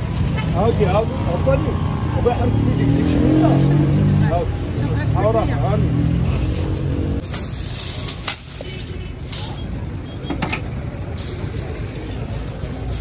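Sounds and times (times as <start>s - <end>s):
street traffic rumble: 0.0s - 13.0s
aluminium foil crinkling: 7.2s - 9.6s
utensils knocking and clattering: 7.2s - 13.0s.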